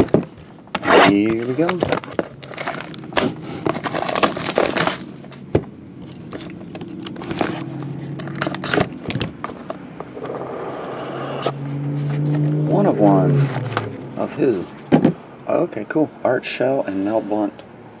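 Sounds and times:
plastic shrink wrap crinkling: 1.2 - 5.4.

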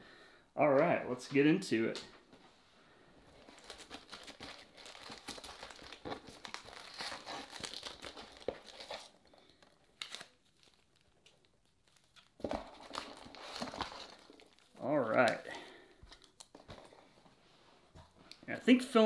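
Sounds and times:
foil wrappers crinkling: 3.3 - 17.1.

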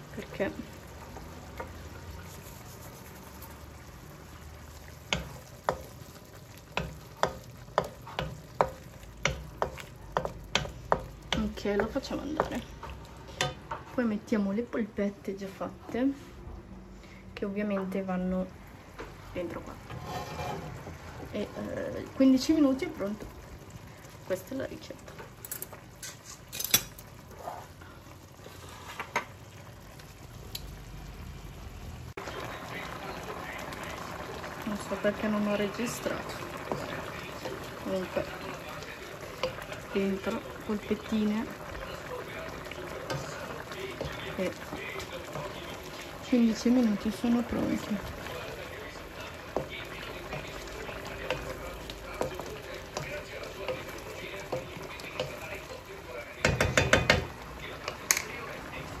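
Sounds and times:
wooden spoon stirring: 0.0 - 14.1, 19.0 - 23.3, 32.2 - 58.9
sauce sizzling in a wok: 0.0 - 15.7, 16.7 - 59.0
wooden spoon knocking on pan: 5.0 - 6.0, 6.7 - 12.6, 51.2 - 55.4, 56.4 - 57.4.

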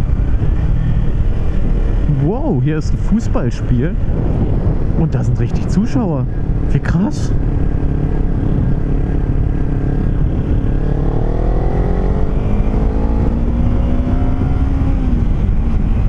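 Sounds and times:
wind on microphone: 0.0 - 16.0
motorcycle engine accelerating: 6.2 - 16.0.

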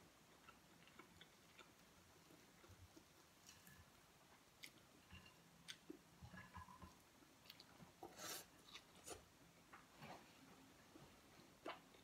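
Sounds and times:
person eating: 0.3 - 9.3.

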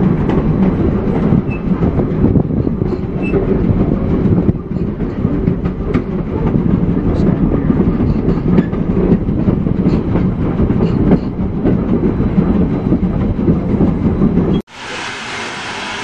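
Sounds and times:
train wheels rumbling and rattling: 0.0 - 14.7
steady steam hiss: 14.7 - 16.0.

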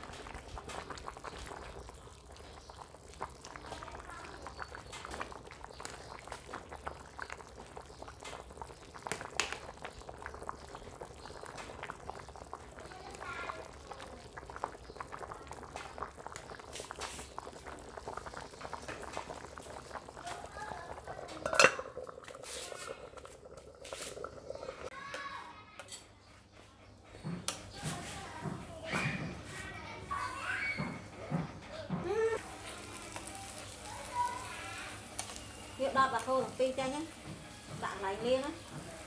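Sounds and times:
soup boiling: 0.0 - 26.0, 27.4 - 39.0
ladle clinking against pot: 21.4 - 22.0.

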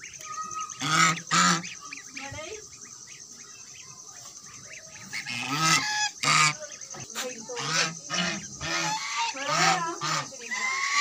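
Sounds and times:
ducklings peeping: 0.0 - 11.0
goose honking: 0.7 - 1.8, 5.1 - 6.6, 7.6 - 11.0.

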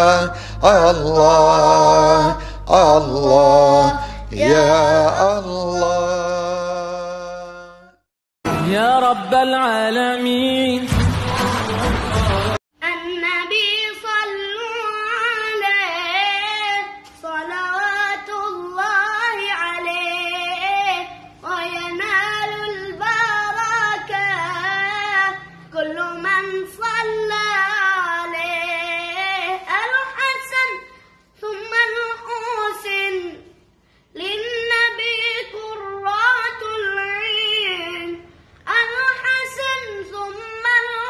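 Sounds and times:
boy singing unaccompanied: 1.2 - 6.0, 12.8 - 33.5, 34.2 - 41.0.

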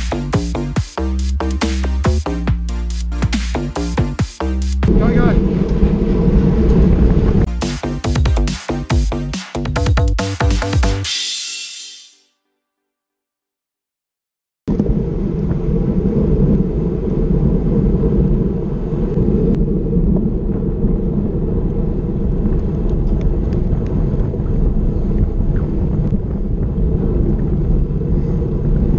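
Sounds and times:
wind buffeting microphone: 4.9 - 7.5, 14.7 - 28.9.

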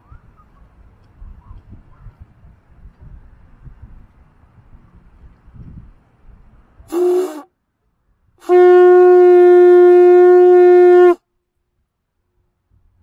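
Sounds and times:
conch shell horn blowing: 6.9 - 7.5, 8.4 - 11.2.

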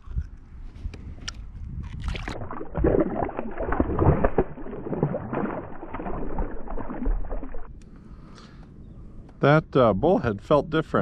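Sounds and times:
fish thrashing water splashing: 2.0 - 7.7.

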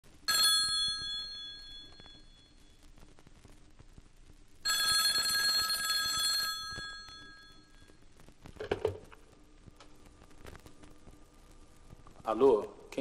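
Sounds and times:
record surface crackle: 0.0 - 13.0
telephone bell ringing: 0.3 - 2.6, 4.6 - 8.0.

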